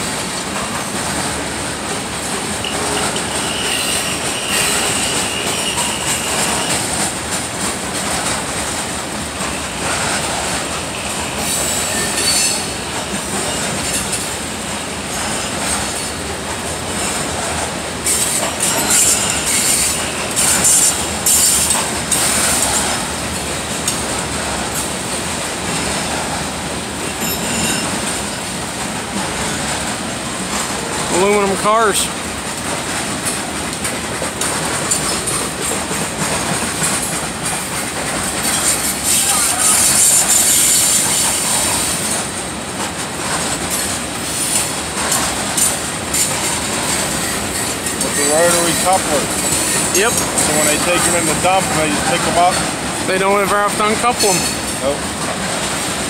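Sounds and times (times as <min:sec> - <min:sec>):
train wheels rumbling on rail: 0:00.0 - 0:56.0
high-pitched wheel squeals: 0:03.2 - 0:06.8, 0:11.4 - 0:12.8, 0:27.2 - 0:27.9.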